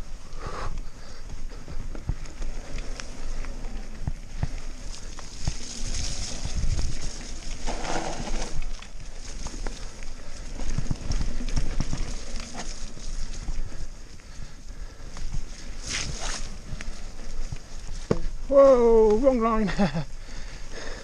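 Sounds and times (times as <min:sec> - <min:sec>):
bike tyres rumbling on mud: 0:00.0 - 0:21.0
bike knocks and rattles: 0:01.3 - 0:13.5, 0:17.5 - 0:19.2.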